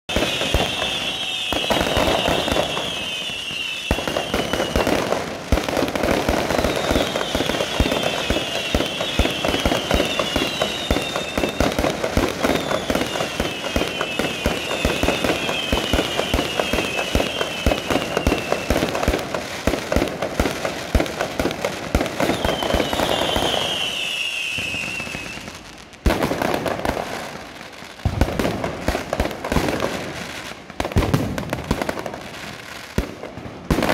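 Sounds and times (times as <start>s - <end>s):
shrill falling whistles: 0.1s - 4.9s, 6.5s - 11.8s, 12.4s - 18.8s, 22.2s - 25.6s
fireworks crackling and banging: 0.1s - 33.9s.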